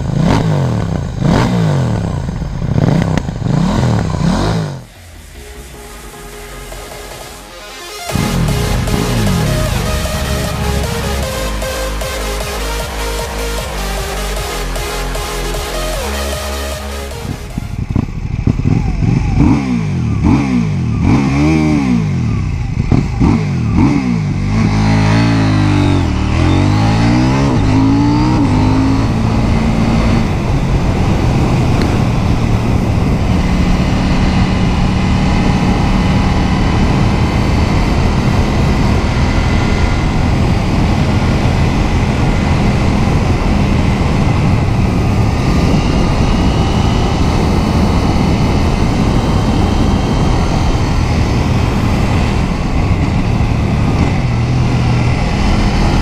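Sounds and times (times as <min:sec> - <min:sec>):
motorcycle engine revving: 0:00.0 - 0:56.0
wind noise on microphone: 0:17.2 - 0:56.0.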